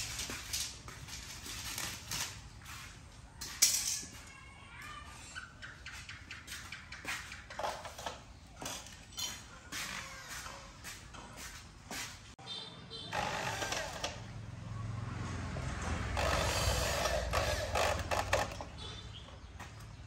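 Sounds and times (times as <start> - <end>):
metal tools clinking on concrete: 0.0 - 2.4, 3.4 - 4.5, 7.5 - 9.9.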